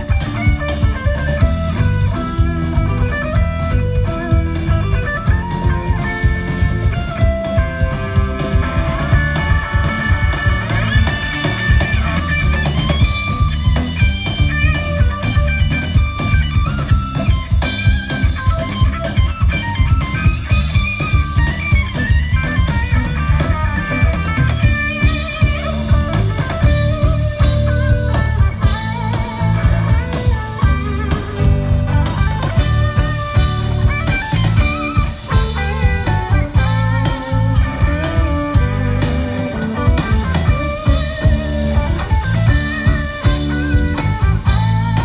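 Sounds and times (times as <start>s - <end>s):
bass guitar: 0.0s - 45.0s
drum kit beat: 0.0s - 45.0s
electric guitar melody: 0.0s - 45.0s.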